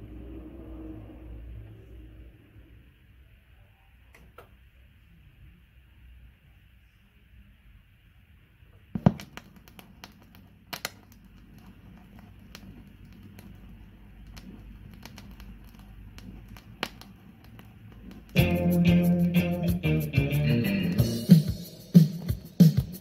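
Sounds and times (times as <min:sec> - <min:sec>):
stylus dropping on record click: 0:09.0 - 0:19.8
vinyl crackles and pops: 0:09.0 - 0:23.0
music with bass and guitar: 0:18.3 - 0:23.0.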